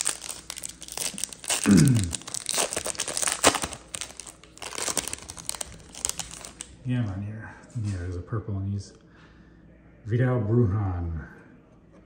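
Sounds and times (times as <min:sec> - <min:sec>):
foil wrapper crinkling and ripping: 0:00.0 - 0:06.7.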